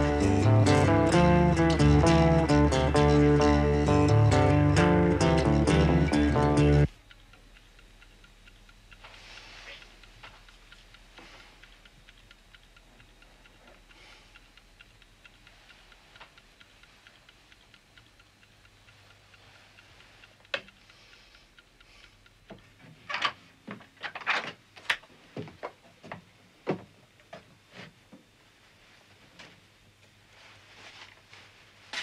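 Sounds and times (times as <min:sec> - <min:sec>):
alarm clock ticking: 0:00.0 - 0:22.5.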